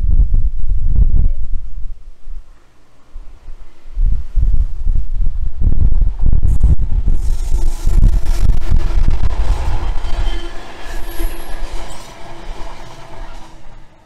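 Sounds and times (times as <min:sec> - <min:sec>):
wind buffeting microphone: 0:00.0 - 0:13.8
diesel locomotive passing: 0:05.5 - 0:14.0
wagon wheels rumbling and squealing: 0:06.5 - 0:14.0.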